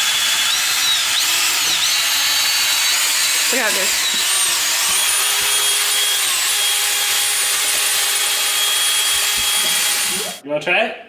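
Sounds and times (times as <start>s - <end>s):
cordless drill whisking cream: 0.0s - 10.4s.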